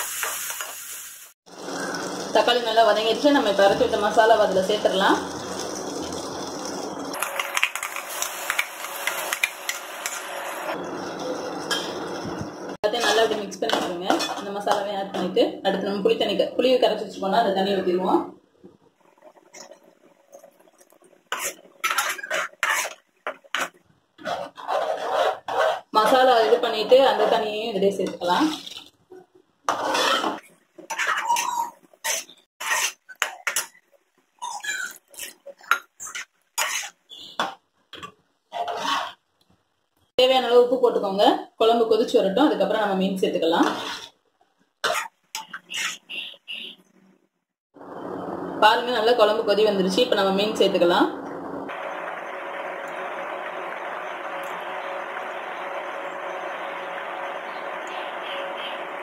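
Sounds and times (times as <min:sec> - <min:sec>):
ladle stirring thick curry: 0:21.3 - 0:27.4, 0:38.5 - 0:39.2, 0:43.6 - 0:44.2.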